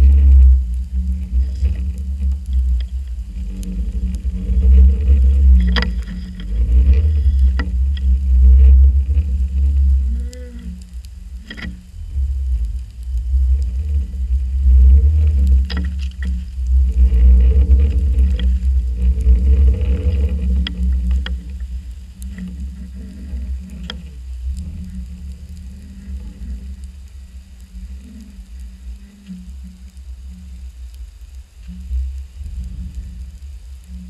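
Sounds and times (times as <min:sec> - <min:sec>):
muffled underwater rumble: 0:00.0 - 0:34.0
sharp clicks and knocks: 0:01.4 - 0:10.0, 0:10.8 - 0:12.0.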